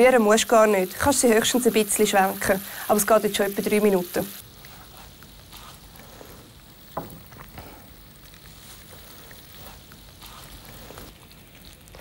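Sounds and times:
sugar syrup bubbling in a pan: 4.4 - 12.0.

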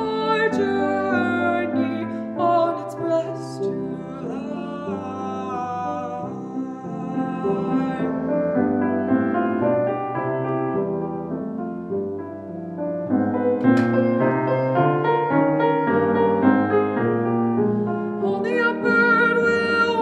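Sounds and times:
woman singing: 0.0 - 8.7, 18.1 - 20.0
grand piano playing: 0.0 - 20.0
sharp click: 13.6 - 14.2.

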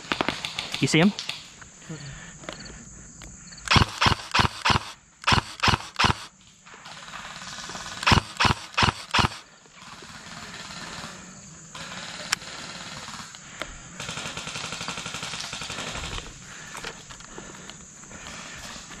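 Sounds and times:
sharp clicks: 3.2 - 6.3, 8.0 - 9.4
airsoft gun shots: 3.7 - 6.3, 8.0 - 9.4.

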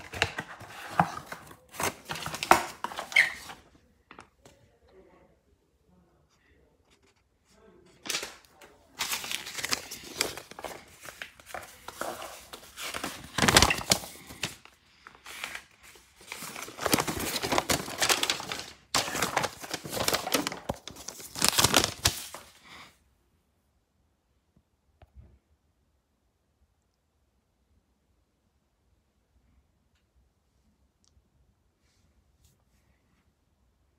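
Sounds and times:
paper leaflet rustling: 0.0 - 4.6, 8.0 - 22.6.

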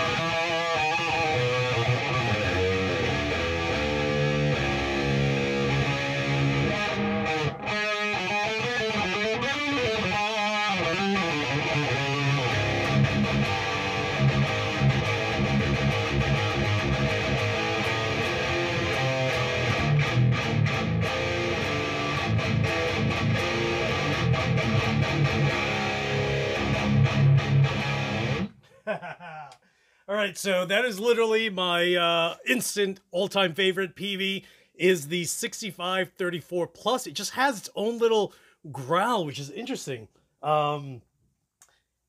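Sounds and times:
distorted electric guitar riff: 0.0 - 28.6.

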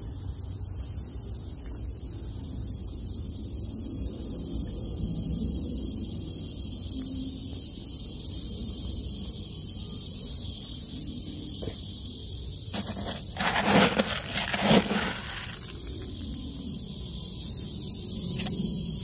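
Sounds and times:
plastic bucket rustling scrapes: 12.7 - 16.1.

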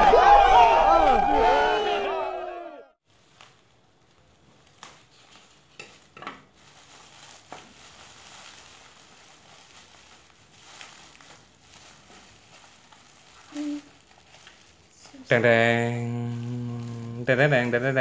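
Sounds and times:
sharp plastic crackles: 3.0 - 15.3
plastic bag crinkling: 3.0 - 18.0.

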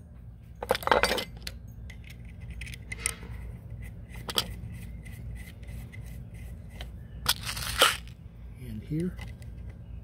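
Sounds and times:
steady low hum: 0.0 - 10.0
metal parts rubbing and scraping: 0.6 - 8.2.

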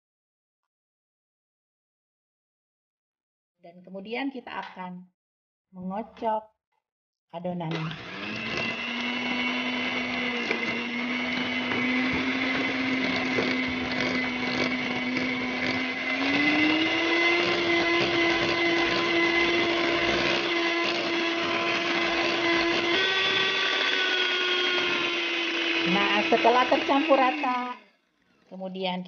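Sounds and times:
electric hand mixer whine: 7.7 - 28.5.

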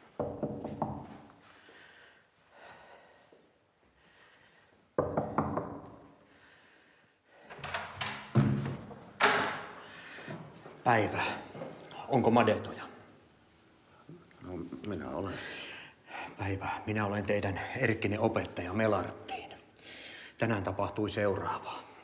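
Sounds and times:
fist knocking on wooden door: 5.0 - 5.9
door opening with thumps: 7.5 - 9.7.

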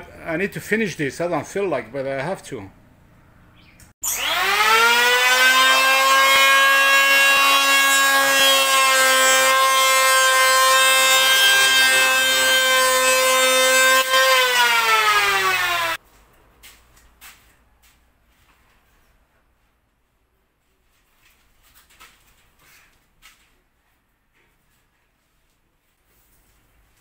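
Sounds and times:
power tool motor whine: 4.0 - 8.3, 11.4 - 16.0.

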